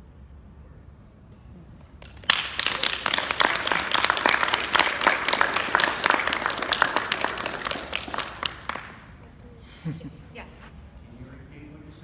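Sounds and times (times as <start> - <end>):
audience applause: 2.0 - 9.1.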